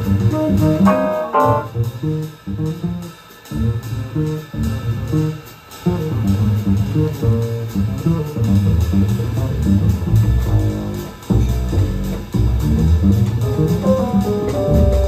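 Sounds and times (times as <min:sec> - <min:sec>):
double bass plucked: 0:00.1 - 0:02.0, 0:07.2 - 0:15.0.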